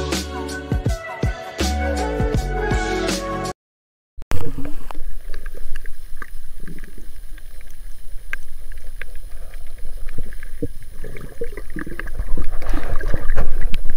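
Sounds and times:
low rumble of water moving: 4.3s - 13.9s
sharp clicks and crackles: 4.7s - 13.9s.

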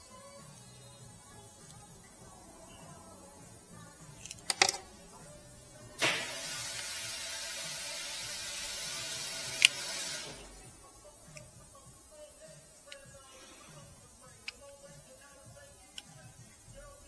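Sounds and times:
steady hiss: 0.0s - 17.0s
plastic and metal clicks: 4.1s - 5.0s, 9.4s - 9.9s.

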